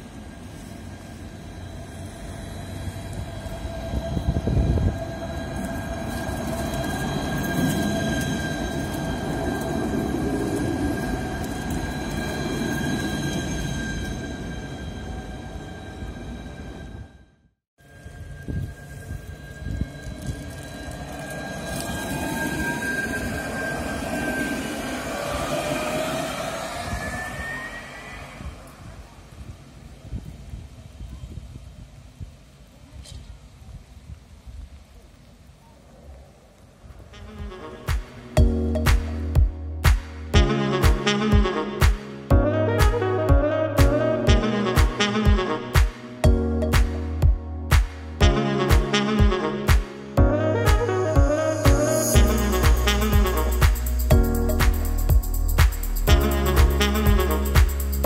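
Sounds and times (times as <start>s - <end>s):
high-pitched whine: 0.0s - 17.1s, 17.8s - 29.3s
tram passing on track: 0.0s - 30.8s
wheel-on-rail rumble: 17.8s - 35.3s.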